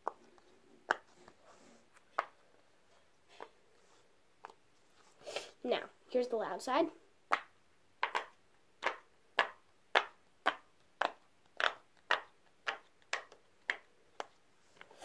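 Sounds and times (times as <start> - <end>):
pop-it toy bubbles popping: 7.3 - 13.9.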